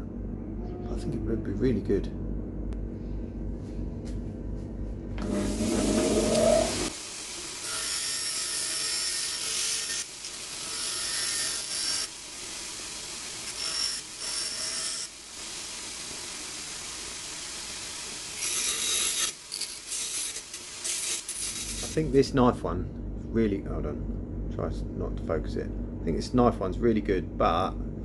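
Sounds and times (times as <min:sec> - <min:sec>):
metal grinding on stone wheel: 0:05.2 - 0:06.9, 0:18.4 - 0:22.0
bench grinder running: 0:05.2 - 0:07.0, 0:07.6 - 0:12.2, 0:18.3 - 0:22.0.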